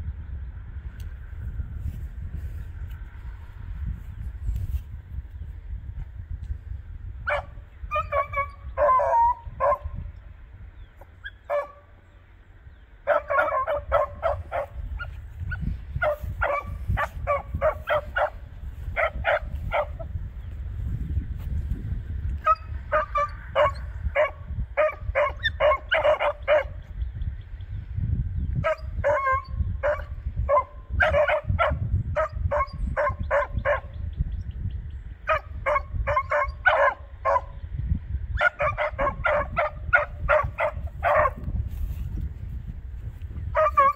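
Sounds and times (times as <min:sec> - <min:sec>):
hounds barking: 0:07.3 - 0:10.0, 0:11.2 - 0:12.0, 0:13.0 - 0:20.1, 0:22.4 - 0:26.8, 0:28.6 - 0:34.0, 0:35.2 - 0:37.6, 0:38.4 - 0:41.5, 0:43.5 - 0:43.9.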